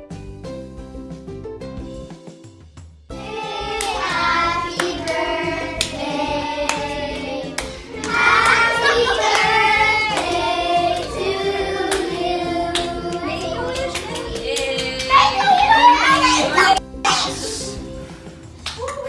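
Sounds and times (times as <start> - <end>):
children singing: 3.2 - 16.8
hand claps: 3.7 - 4.2, 4.8 - 16.3, 18.6 - 19.0.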